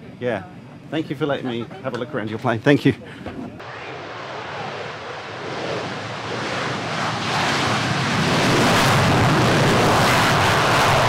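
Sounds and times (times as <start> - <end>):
fighter jet taking off: 3.6 - 11.0.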